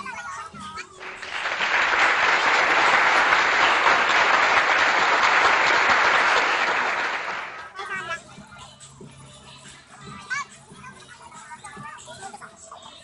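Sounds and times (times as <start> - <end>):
crowd applauding: 1.0 - 7.8.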